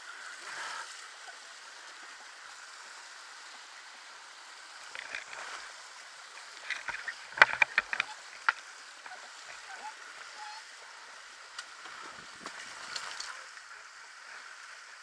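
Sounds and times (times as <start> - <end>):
dirt bike in stream steady rush: 0.0 - 15.0.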